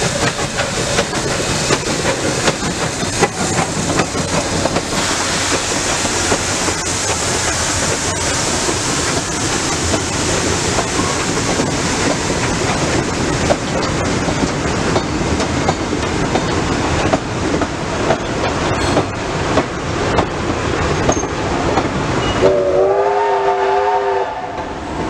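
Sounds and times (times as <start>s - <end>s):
wheels clicking over rail joints: 0.0s - 22.4s
train wagons rumbling past: 0.0s - 25.0s
steam locomotive whistle: 22.2s - 24.8s.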